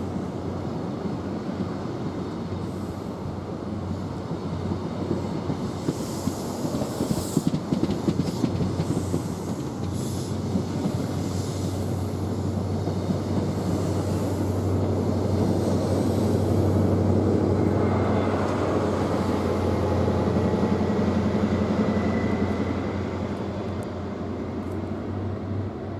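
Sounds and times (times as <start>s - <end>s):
train coaches rolling past: 0.0s - 25.9s.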